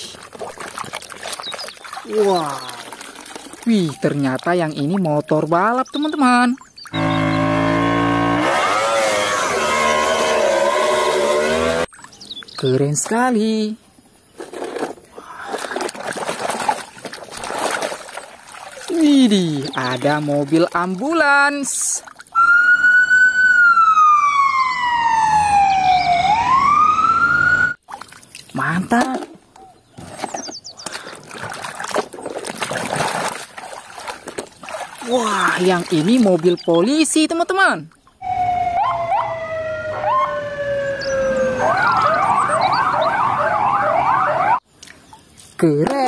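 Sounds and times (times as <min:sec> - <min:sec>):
toy electronic siren wail: 0:07.0 - 0:11.9, 0:22.4 - 0:27.8, 0:38.2 - 0:44.6.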